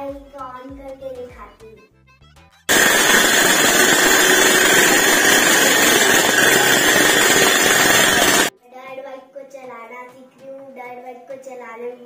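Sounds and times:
small dirt bike engine running: 2.7 - 8.5.

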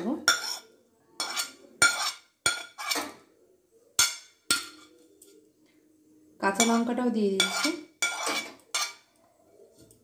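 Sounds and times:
spoon clinking against glass bowls: 4.0 - 5.4, 6.6 - 9.1.

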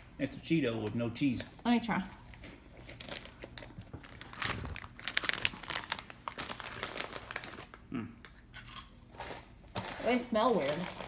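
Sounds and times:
plastic bag rustling: 2.2 - 7.9, 9.2 - 11.0.

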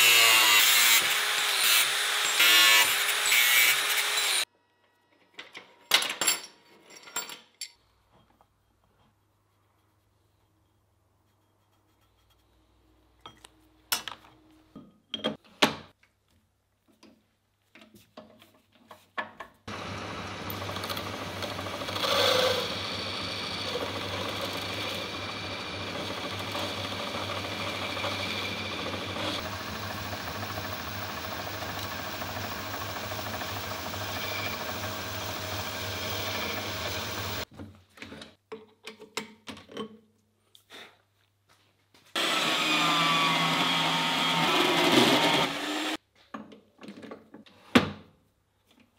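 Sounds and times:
metal lathe cutting steel: 0.0 - 4.4, 19.7 - 37.4, 42.2 - 46.0.

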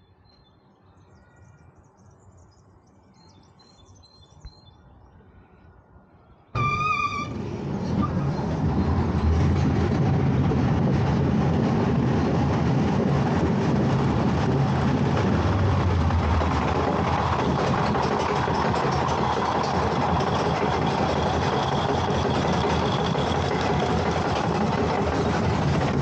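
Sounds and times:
coaster train rumbling on track: 6.6 - 26.0.

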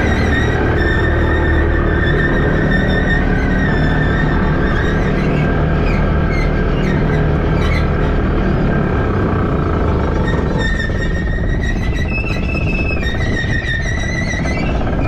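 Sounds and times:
diesel engine droning: 0.0 - 15.0.

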